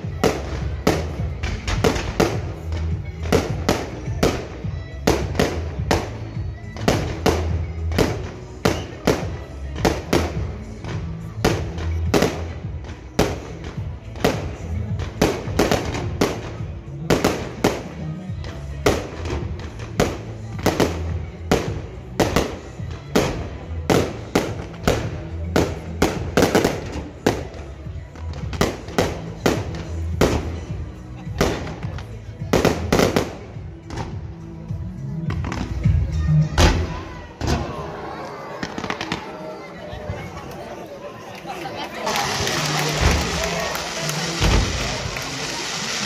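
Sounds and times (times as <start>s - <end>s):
music with steady bass: 0.0s - 37.3s
fireworks bangs: 42.1s - 46.0s.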